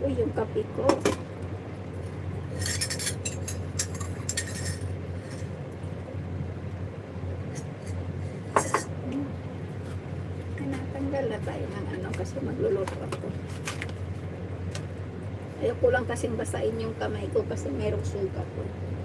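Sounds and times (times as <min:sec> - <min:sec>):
steady low hum: 0:00.0 - 0:19.0
dishes and glassware clinking: 0:02.6 - 0:04.9.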